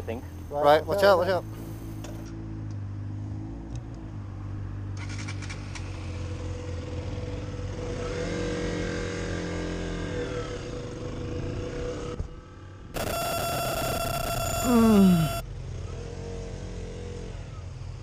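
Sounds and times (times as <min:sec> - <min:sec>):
motorcycle engine accelerating: 0:01.5 - 0:13.3.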